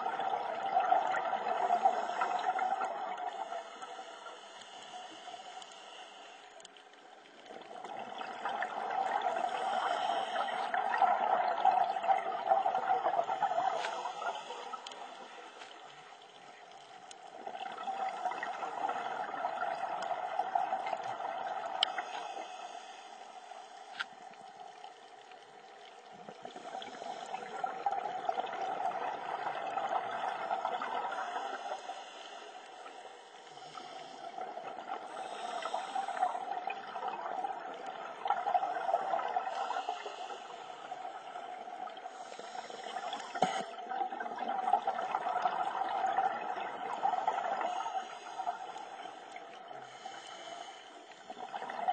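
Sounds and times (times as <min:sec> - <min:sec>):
bubbling exhaust underwater: 0:00.0 - 0:51.9
diver breathing through regulator: 0:01.6 - 0:06.8, 0:09.2 - 0:12.0, 0:13.3 - 0:16.2, 0:21.8 - 0:24.2, 0:31.0 - 0:36.7, 0:38.9 - 0:43.8, 0:47.0 - 0:51.9.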